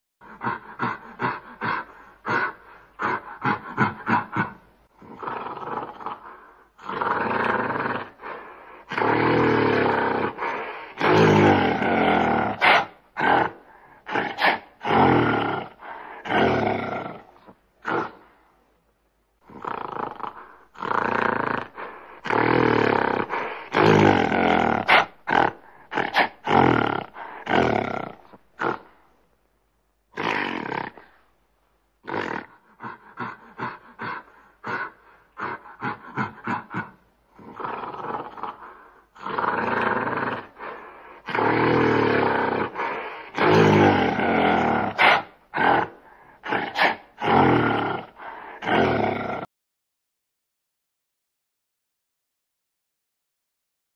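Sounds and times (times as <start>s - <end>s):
gorilla roaring calls: 11.0s - 17.2s, 41.2s - 49.5s.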